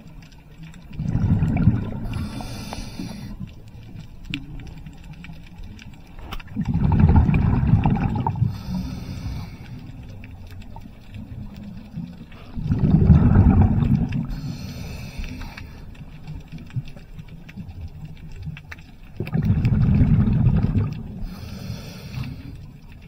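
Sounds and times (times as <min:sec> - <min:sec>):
exhaled bubbles gushing: 0:00.0 - 0:21.5
hissing regulator inhale: 0:02.0 - 0:03.4, 0:08.4 - 0:09.9, 0:14.3 - 0:15.8, 0:21.2 - 0:22.6.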